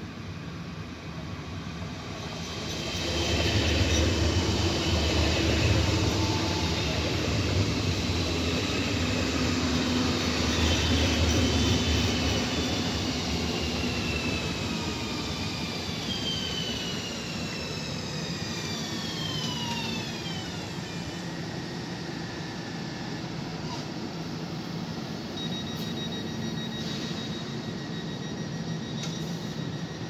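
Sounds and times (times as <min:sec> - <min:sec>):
train braking to a stop: 0:00.1 - 0:30.0
traction motor whine: 0:02.4 - 0:23.2.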